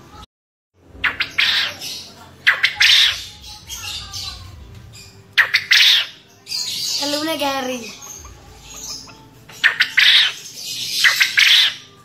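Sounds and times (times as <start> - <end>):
quail crowing: 1.0 - 3.3, 5.4 - 6.2, 8.0 - 11.9.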